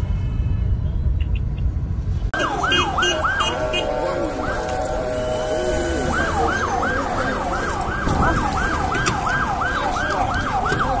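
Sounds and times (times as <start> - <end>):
siren yelping: 2.4 - 11.0.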